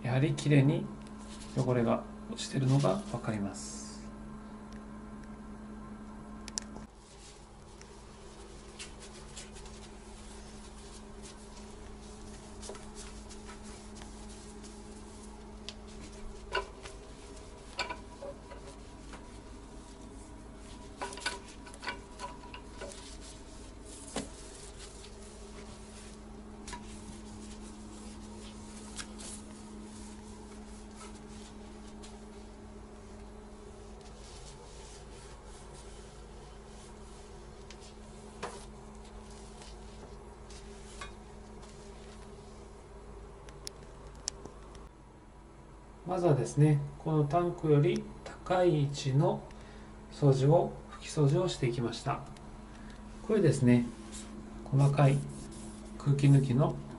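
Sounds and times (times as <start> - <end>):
steady low hum: 0.0 - 56.9
damp cloth rubbing ceramic tank: 6.9 - 42.8, 53.2 - 56.9.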